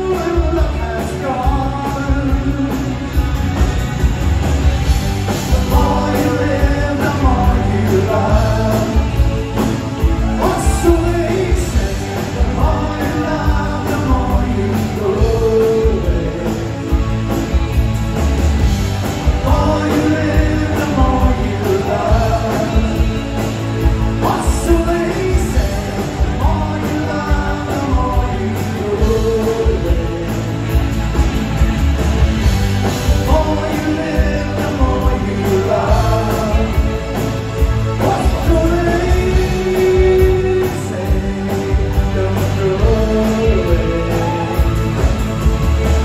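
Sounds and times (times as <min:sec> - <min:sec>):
male lead vocal: 0:00.0 - 0:03.5, 0:05.2 - 0:17.7, 0:19.1 - 0:31.4, 0:32.8 - 0:46.0
live new wave band: 0:00.0 - 0:46.0.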